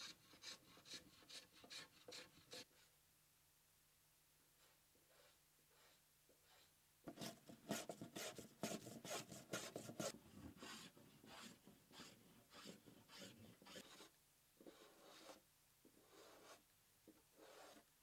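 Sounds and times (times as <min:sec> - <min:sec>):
hand plane scraping wood: 0:05.2 - 0:14.1, 0:17.4 - 0:17.8.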